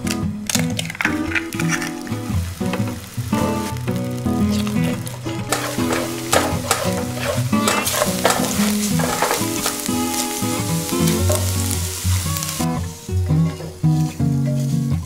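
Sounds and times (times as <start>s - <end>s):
eggs sizzling in a frying pan: 0.0s - 14.1s
spatula scraping a pan: 4.5s - 12.7s.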